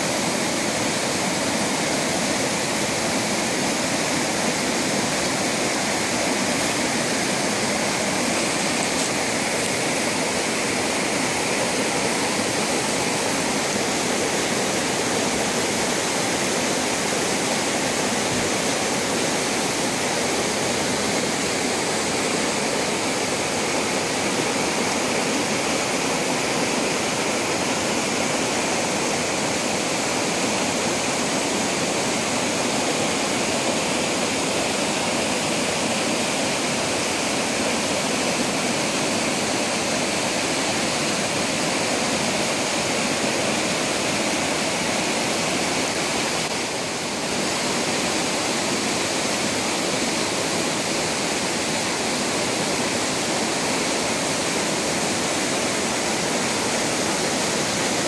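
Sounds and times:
creek rushing over boulders: 0:00.0 - 0:58.0.

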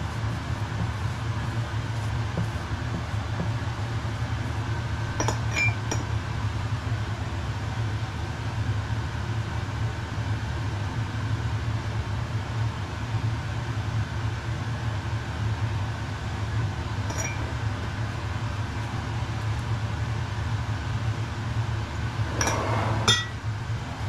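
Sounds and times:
steady low hum: 0:00.0 - 0:24.0
light clinks: 0:17.1 - 0:17.4.

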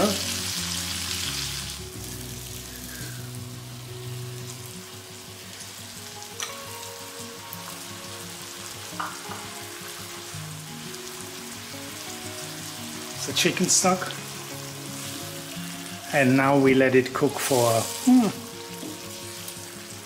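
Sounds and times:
food sizzling in a wok: 0:00.0 - 0:20.0.

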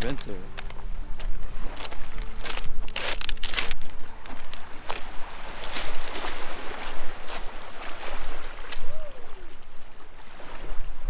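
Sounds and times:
footsteps crunching on pebbles: 0:00.0 - 0:08.4
small waves washing on stony shore: 0:00.0 - 0:11.0.

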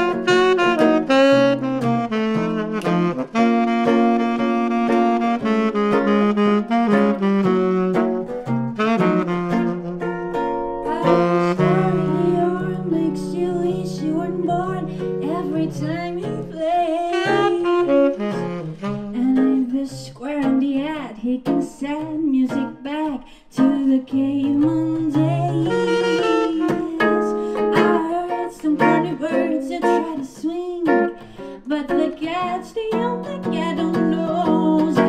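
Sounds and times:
saxophone solo: 0:00.0 - 0:19.7, 0:24.5 - 0:30.2
acoustic guitar chords: 0:00.0 - 0:35.0.

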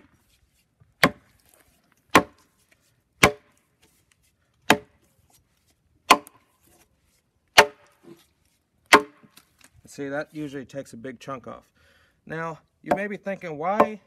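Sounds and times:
axe chopping log: 0:01.0 - 0:02.5, 0:03.2 - 0:03.6, 0:04.6 - 0:05.0, 0:06.0 - 0:06.5, 0:07.5 - 0:08.2, 0:08.9 - 0:09.4, 0:13.7 - 0:14.0.

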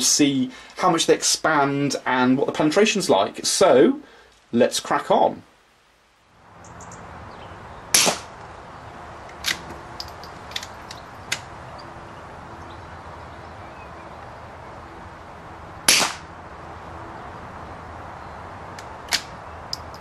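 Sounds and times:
rifle bolt clicks and knocks: 0:09.3 - 0:11.5
suppressed rifle shots: 0:15.9 - 0:16.2.

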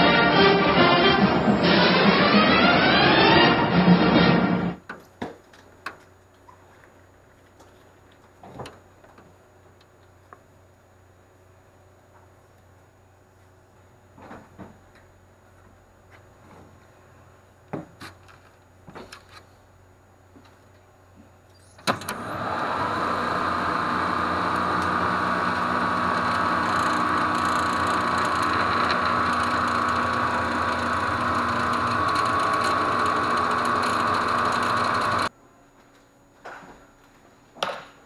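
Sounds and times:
liftgate motor whining: 0:00.0 - 0:04.8, 0:21.8 - 0:35.3
motor starting clunk: 0:00.0 - 0:04.8, 0:21.8 - 0:35.3.

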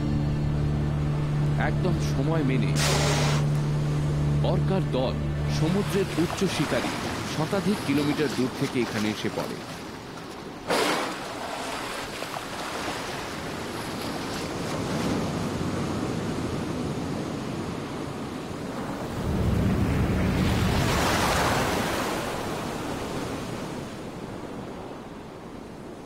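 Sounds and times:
sea water rushing and splashing: 0:00.0 - 0:26.0.

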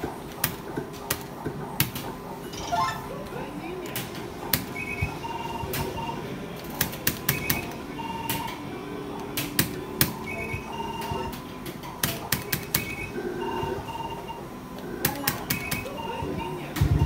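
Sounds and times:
electronic beeps and chimes: 0:02.5 - 0:03.1.

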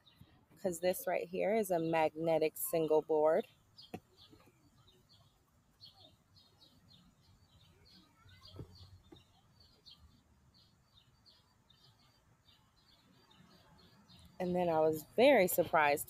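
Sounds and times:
faint high chirping: 0:02.7 - 0:15.2.

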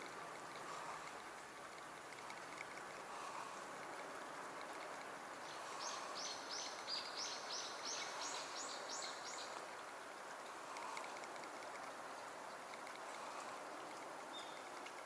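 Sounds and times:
outdoor ambience hiss: 0:00.0 - 0:15.0
small bird chirping: 0:14.3 - 0:14.8.

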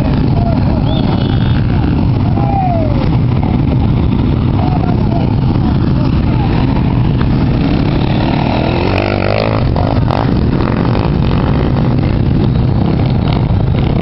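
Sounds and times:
dirt bike engine revving: 0:02.9 - 0:14.0.

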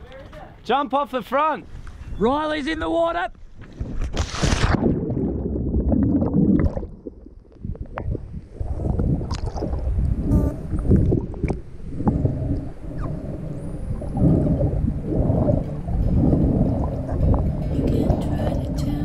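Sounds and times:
underwater water sloshing: 0:03.7 - 0:19.0
whale clicks: 0:08.9 - 0:18.7.

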